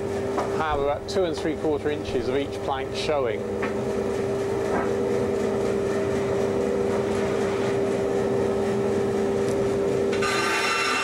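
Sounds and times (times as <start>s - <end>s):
steady mechanical drone: 0.0s - 11.0s.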